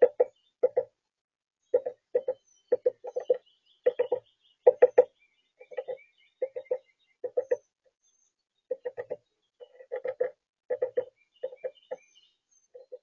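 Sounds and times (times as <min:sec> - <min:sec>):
faint distant birdsong: 0:00.0 - 0:13.0
bird tapping seed with bill: 0:01.8 - 0:07.6, 0:08.7 - 0:11.8.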